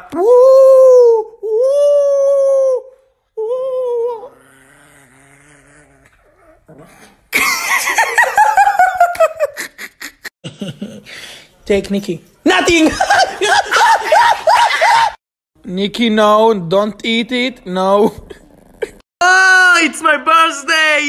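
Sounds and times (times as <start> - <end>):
dog growling: 4.1 - 7.3, 18.1 - 19.0.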